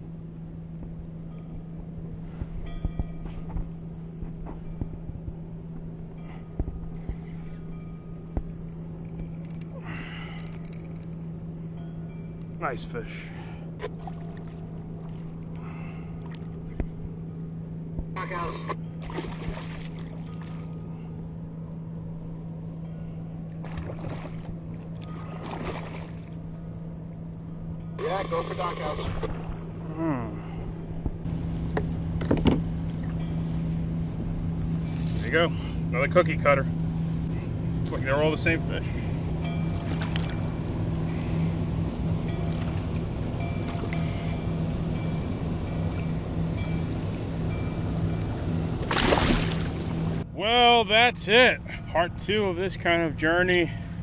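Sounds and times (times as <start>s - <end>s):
low steady hum: 0.0s - 54.0s
water sloshing: 13.3s - 17.0s, 19.0s - 21.0s, 23.5s - 26.6s, 28.6s - 29.9s, 39.7s - 40.5s, 42.4s - 44.4s, 48.3s - 50.2s
fish splashing: 19.0s - 20.7s, 23.6s - 26.4s, 48.8s - 49.8s
fish splashing at surface: 19.0s - 20.7s, 48.9s - 49.8s.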